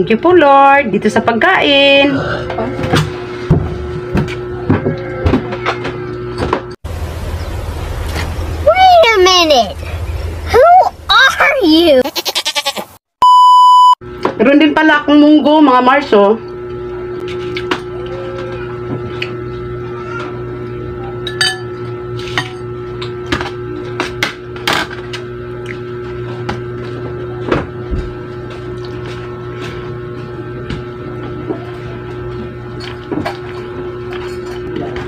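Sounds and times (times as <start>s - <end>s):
steady hum: 0.0s - 12.0s, 13.8s - 35.0s
dishes and utensils clinking: 21.3s - 22.7s.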